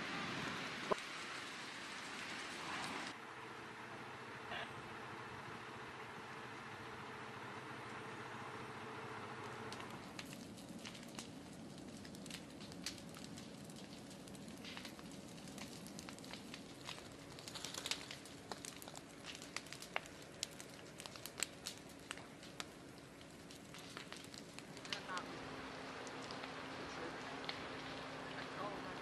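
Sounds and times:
wildfire crackling and rushing: 0.0 - 29.0.

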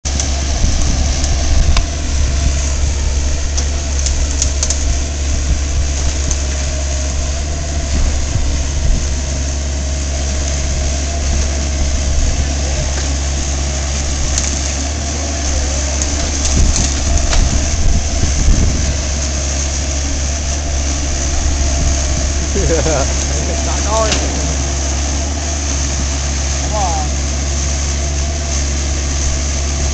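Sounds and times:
diesel engine humming: 0.0 - 29.9
wood knocking and cracking: 16.0 - 17.8.

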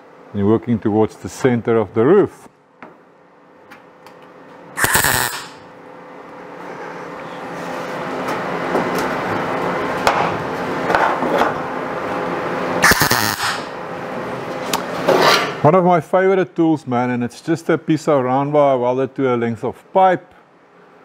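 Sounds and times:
steady hum: 0.0 - 21.0
welding bursts: 4.8 - 5.6, 12.8 - 13.7.

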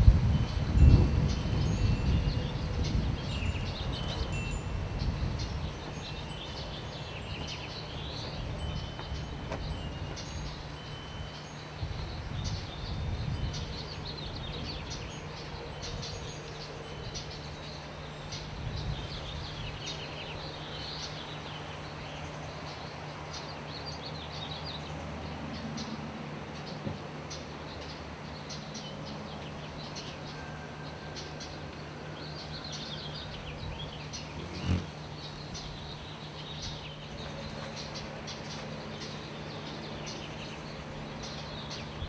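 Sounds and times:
wind chime ringing: 0.0 - 20.4, 30.1 - 33.6
small birds chirping: 0.0 - 42.0.

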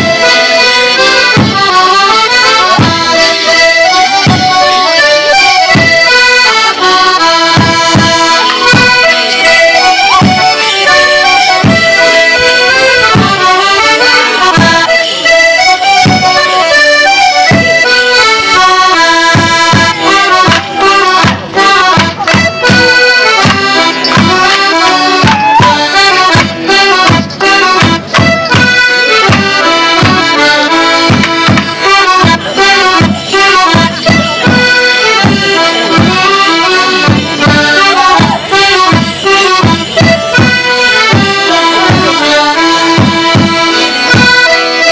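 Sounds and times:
accordion-led folk band playing: 0.0 - 44.9
sharp knocks and beats: 7.5 - 9.0, 18.9 - 25.4, 26.0 - 36.2.

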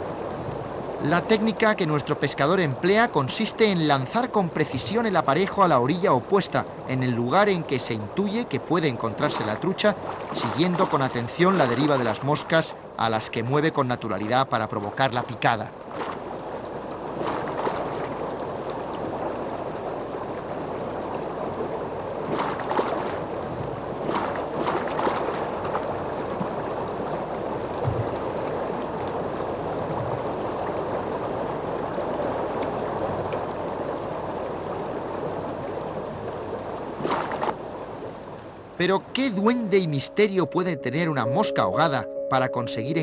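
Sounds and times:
river rushing over stones: 0.0 - 16.2.

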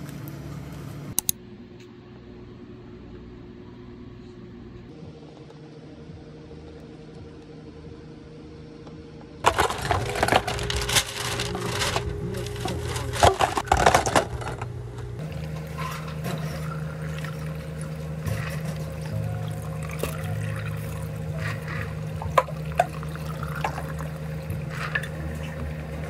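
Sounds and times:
low steady hum: 0.0 - 26.0
ice cubes clattering into cups: 9.4 - 14.7
water pouring over ice: 9.5 - 13.6, 16.4 - 25.8.

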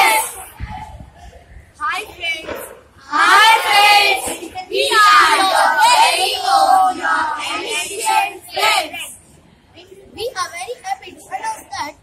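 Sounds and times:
children singing in unison: 3.0 - 8.9.

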